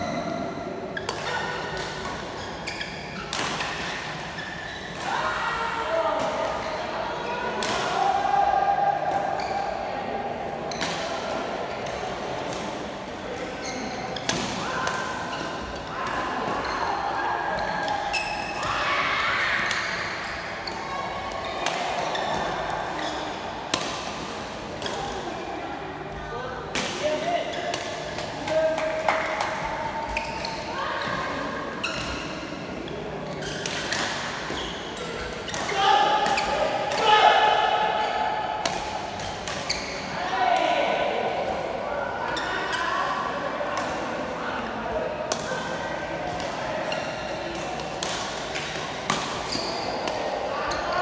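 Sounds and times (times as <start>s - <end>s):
shoes squeaking on court floor: 2.4s - 5.0s, 13.6s - 14.3s, 30.0s - 32.5s, 33.2s - 35.7s, 39.2s - 40.2s, 49.4s - 50.0s.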